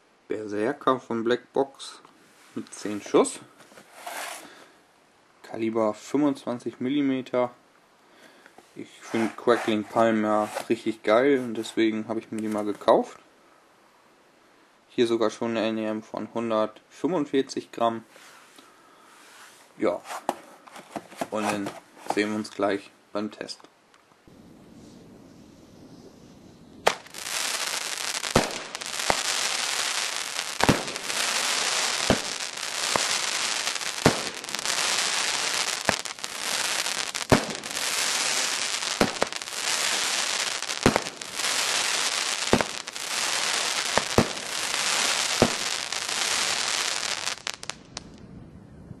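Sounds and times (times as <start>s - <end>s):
firework crackling: 3.8s - 4.5s, 9.0s - 10.8s, 26.1s - 48.2s
firework reports: 8.9s - 12.8s, 21.2s - 22.5s, 26.8s - 48.1s.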